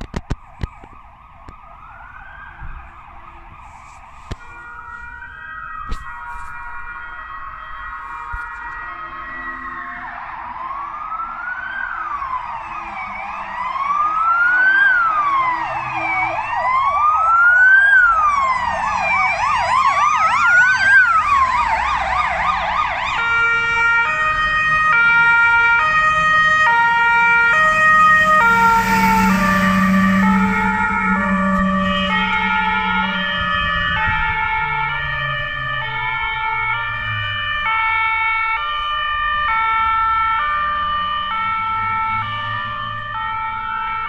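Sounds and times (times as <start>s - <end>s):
fast siren yelp: 0.0s - 44.0s
fire engine rumble: 0.0s - 44.0s
rising and falling siren wail: 0.0s - 44.0s
two-tone siren: 0.0s - 44.0s.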